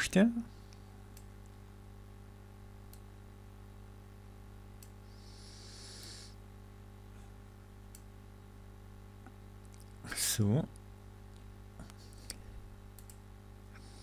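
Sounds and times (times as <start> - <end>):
faint electrical hum: 0.0 - 14.0
computer mouse clicks: 12.2 - 13.2.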